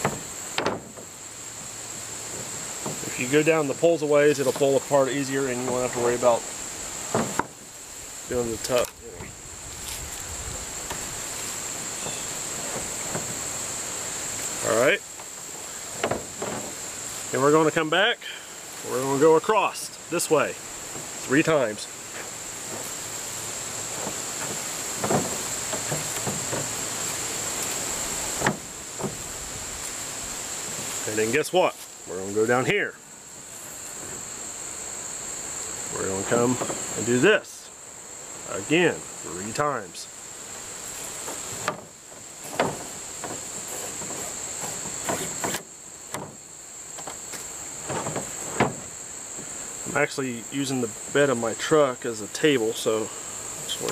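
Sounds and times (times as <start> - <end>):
wooden poles knocking: 0.0 - 1.2, 2.3 - 3.8, 7.0 - 7.7, 10.8 - 13.6, 14.3 - 16.9, 20.8 - 29.4, 36.3 - 37.0, 40.9 - 50.0
cord rubbing on wooden poles: 0.0 - 17.9, 18.8 - 32.6, 40.2 - 50.1
insects droning: 0.0 - 53.9.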